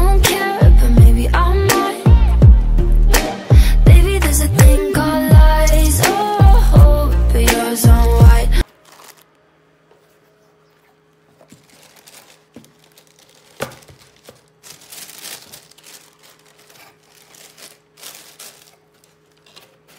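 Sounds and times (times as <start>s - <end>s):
tissue paper crinkling: 8.6s - 9.4s, 11.3s - 19.9s.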